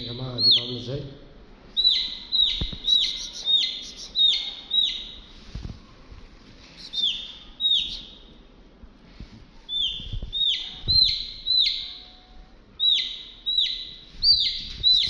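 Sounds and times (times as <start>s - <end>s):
chick peeping: 0.0s - 0.8s, 1.8s - 5.2s, 6.8s - 8.2s, 9.7s - 15.0s.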